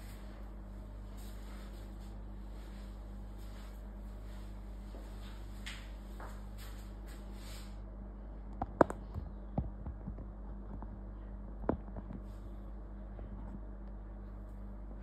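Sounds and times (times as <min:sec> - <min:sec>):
steady low hum: 0:00.0 - 0:15.0
sharp knocks and clicks: 0:08.6 - 0:10.9, 0:11.6 - 0:12.2.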